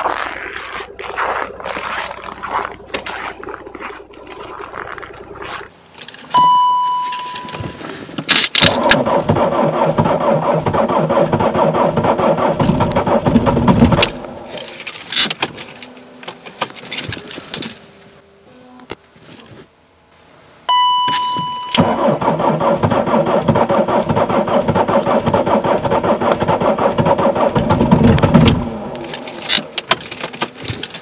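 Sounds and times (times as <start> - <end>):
diesel engine starter cranking: 0.0 - 17.8, 21.1 - 31.0
car electronic chime: 6.3 - 7.8, 20.7 - 21.9.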